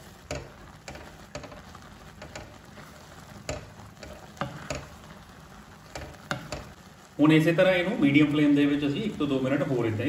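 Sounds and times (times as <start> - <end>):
spatula scraping wok: 0.0 - 7.1
soft frying sizzle: 0.0 - 10.0.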